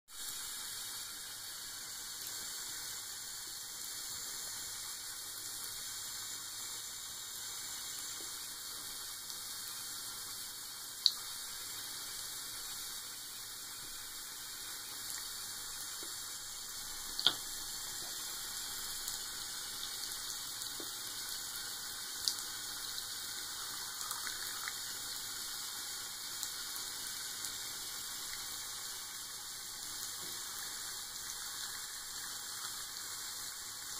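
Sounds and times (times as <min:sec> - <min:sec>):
tap water running into sink: 0:17.0 - 0:21.3.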